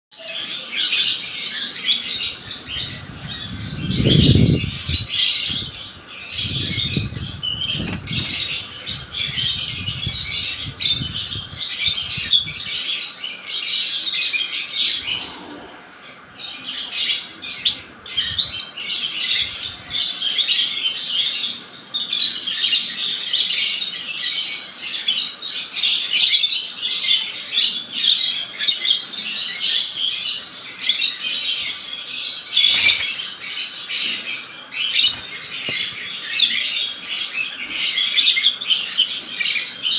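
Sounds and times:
birds chirping and squawking: 0.2s - 39.9s.

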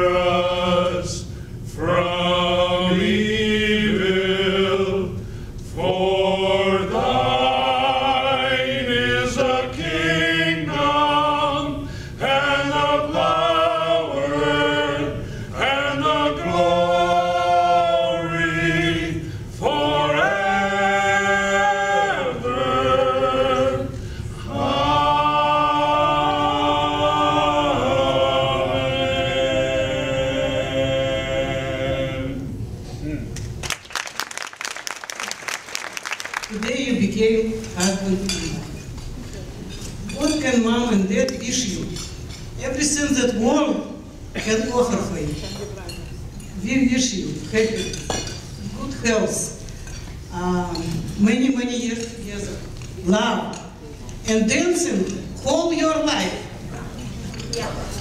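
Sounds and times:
men singing a cappella: 0.0s - 32.6s.

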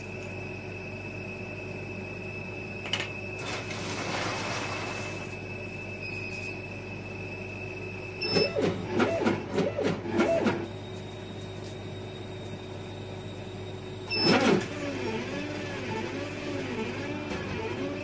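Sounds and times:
stepper motors whining: 0.0s - 18.0s
laser cutter humming: 4.7s - 18.0s.

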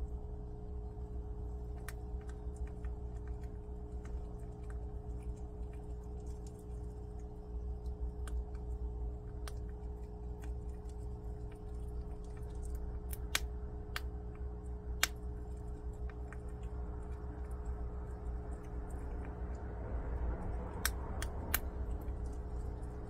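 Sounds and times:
low hum: 0.0s - 23.0s
prairie dog cracking beans: 0.1s - 23.0s.

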